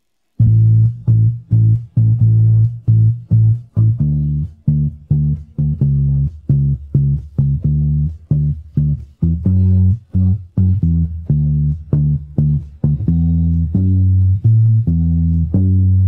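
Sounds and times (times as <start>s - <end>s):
electric bass guitar: 0.4s - 16.0s.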